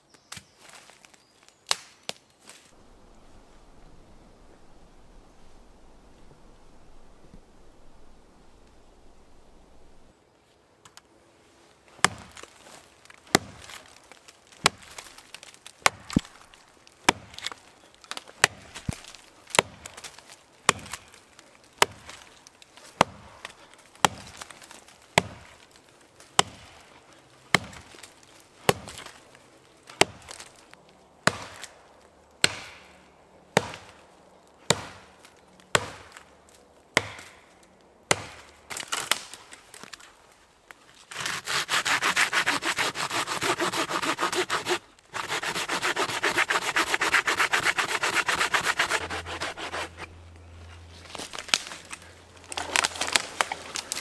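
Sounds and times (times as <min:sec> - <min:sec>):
axe chopping wood: 0:13.3 - 0:13.8, 0:15.8 - 0:16.3, 0:17.0 - 0:17.6, 0:20.7 - 0:21.1, 0:21.8 - 0:22.2, 0:23.0 - 0:23.3, 0:25.2 - 0:25.5, 0:26.4 - 0:26.7, 0:28.6 - 0:29.0, 0:31.2 - 0:31.7, 0:32.4 - 0:32.9, 0:33.6 - 0:34.0, 0:34.7 - 0:35.1, 0:35.7 - 0:36.3, 0:37.0 - 0:37.4, 0:38.1 - 0:39.1.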